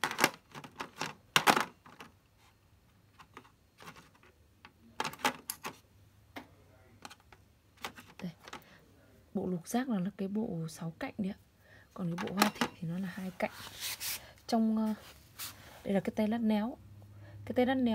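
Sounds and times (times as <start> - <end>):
metal sockets clinking: 12.2 - 12.9.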